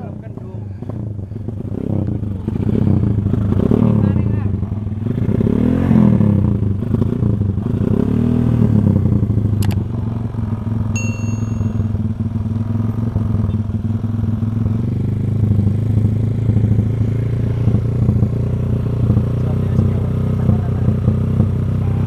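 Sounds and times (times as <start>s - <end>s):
motorcycle engine revving and idling: 0.0s - 22.0s
sharp click: 9.6s - 9.8s
short ringing ding: 11.0s - 12.0s.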